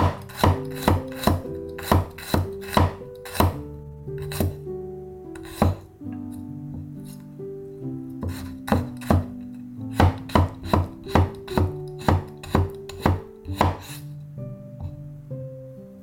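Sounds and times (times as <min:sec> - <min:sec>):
knife chopping on wooden board: 0:00.0 - 0:04.6, 0:05.4 - 0:05.8, 0:08.2 - 0:14.0
soft plucked-string music: 0:00.0 - 0:16.0.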